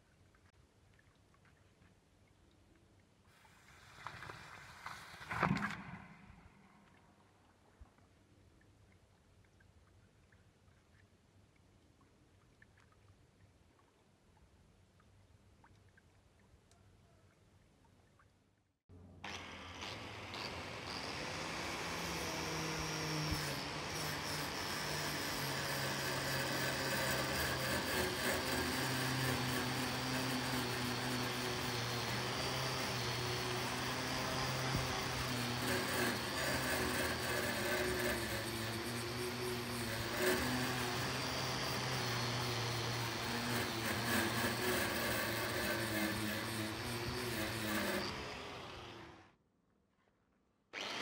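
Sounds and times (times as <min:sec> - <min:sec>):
angle grinder motor whine: 0:19.2 - 0:49.2, 0:50.8 - 0:51.0
wire brush scrubbing metal: 0:19.3 - 0:48.2.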